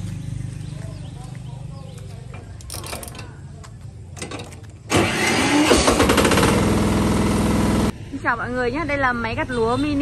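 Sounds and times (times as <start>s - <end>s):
small engine starting and running: 4.9s - 7.9s.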